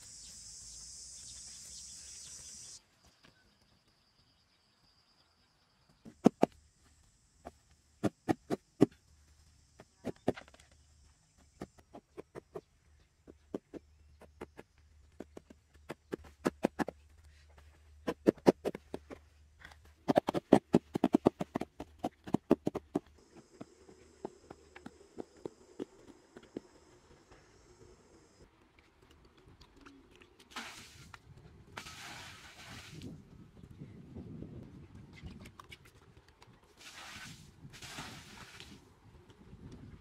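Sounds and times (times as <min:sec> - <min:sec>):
insects droning: 0:00.0 - 0:17.0, 0:20.6 - 0:28.7
hands patting soil: 0:11.4 - 0:26.9.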